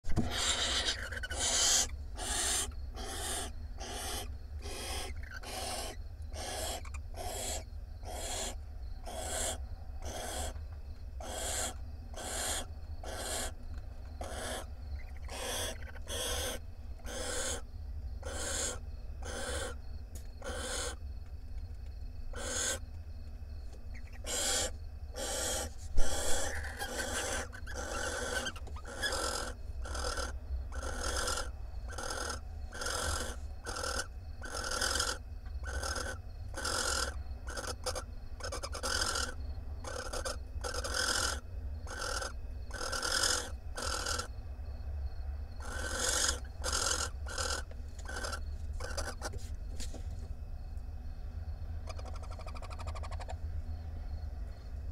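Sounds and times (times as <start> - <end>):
steady low hum: 0.0 - 54.9
barn owls hissing calls: 0.1 - 10.6, 11.2 - 21.0, 22.3 - 22.9, 23.8 - 44.4, 45.6 - 49.5, 51.8 - 53.4.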